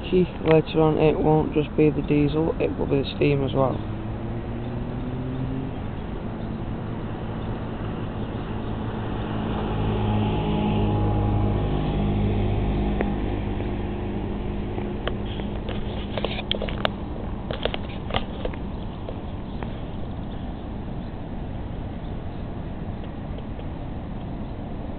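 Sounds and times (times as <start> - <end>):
diesel locomotive engine humming: 0.0 - 24.9.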